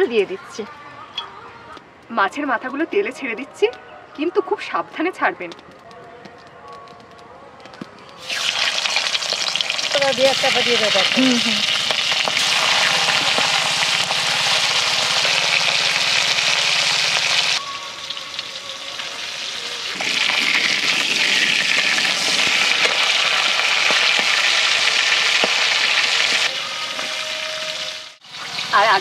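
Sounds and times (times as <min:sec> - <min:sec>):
fish frying in hot oil: 0:08.2 - 0:29.0.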